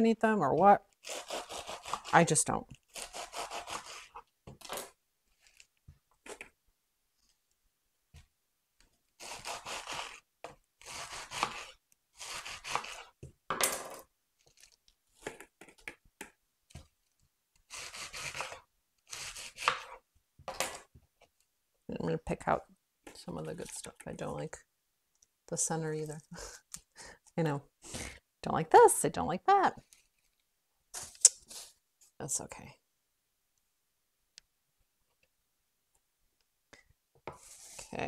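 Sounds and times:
knife cutting lettuce on wooden board: 1.0 - 2.1, 2.9 - 4.2, 9.2 - 10.2, 10.8 - 13.1, 17.7 - 20.0.

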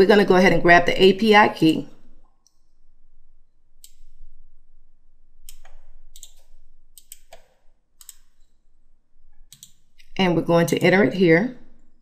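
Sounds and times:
computer mouse clicking: 3.8 - 4.2, 5.4 - 8.5, 9.5 - 10.1.

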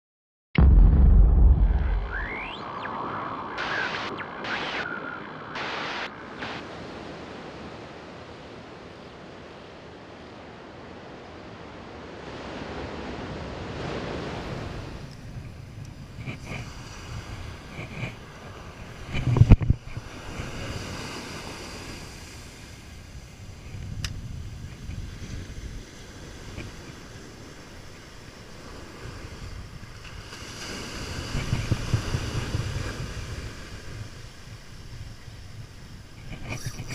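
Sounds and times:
loud low thump: 0.6 - 2.9
short sharp sound effects: 0.6 - 4.9
surf washing onto beach: 12.0 - 36.9
wind buffeting microphone: 12.3 - 36.9.

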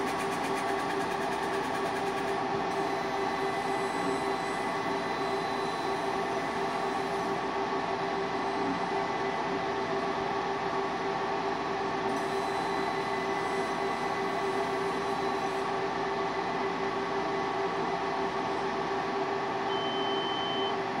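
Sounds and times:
laser engraver humming: 0.0 - 20.8.

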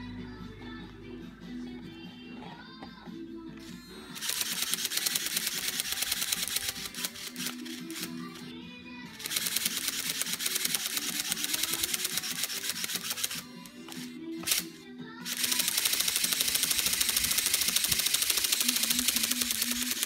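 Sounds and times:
background music: 0.0 - 20.0
toy wing motor clattering: 4.1 - 8.5, 9.1 - 20.0.

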